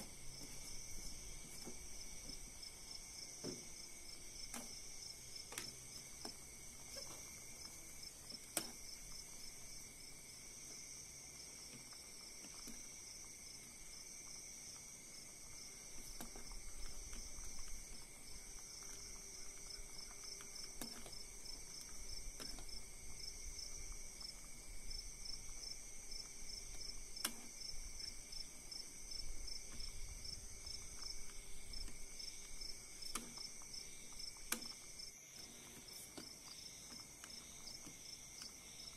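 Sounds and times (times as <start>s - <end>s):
insects trilling: 0.0s - 38.9s.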